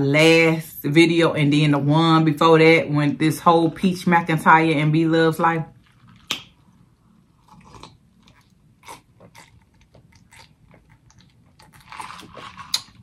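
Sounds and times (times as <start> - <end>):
sipping and swallowing: 5.7 - 6.8
wet mouth clicks and smacks: 6.1 - 6.6.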